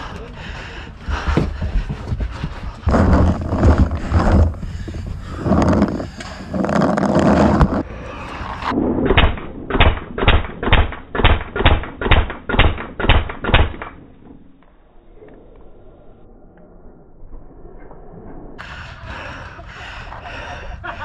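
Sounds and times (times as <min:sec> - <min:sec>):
gear rustling and knocking: 0:01.1 - 0:07.8
paintball marker firing shots: 0:09.2 - 0:14.0.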